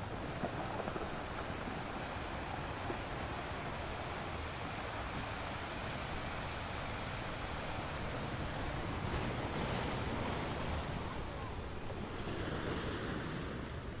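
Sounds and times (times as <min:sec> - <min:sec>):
surf washing against rocks: 0:00.0 - 0:14.0.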